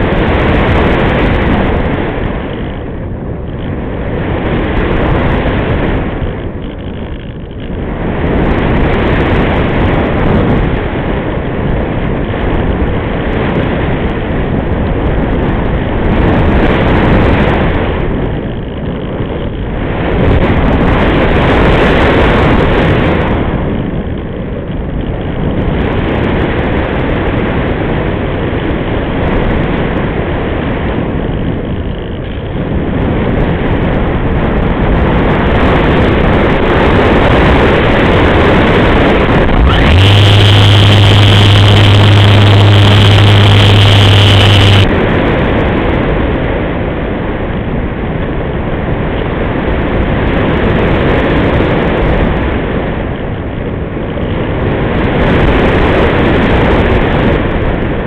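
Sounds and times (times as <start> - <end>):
wind rushing over microphone: 0.0 - 58.0
electric motor humming and whining: 39.2 - 44.9.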